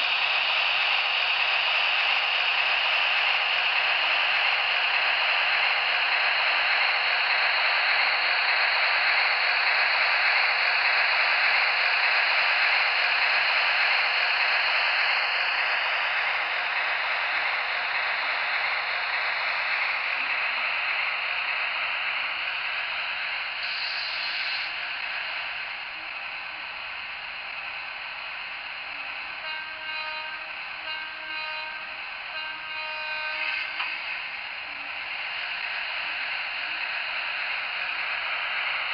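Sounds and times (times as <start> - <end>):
model train rolling on track: 0.0 - 38.9
short pitched toots: 29.4 - 33.9.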